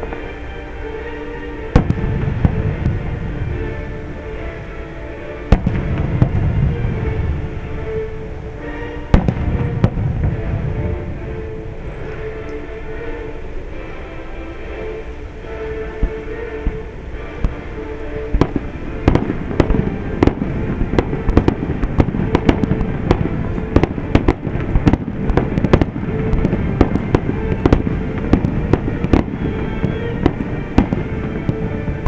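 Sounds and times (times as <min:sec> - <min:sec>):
fireworks bangs and crackles: 0:01.7 - 0:04.5, 0:05.4 - 0:11.6, 0:18.3 - 0:32.0
low rumble: 0:01.8 - 0:14.0.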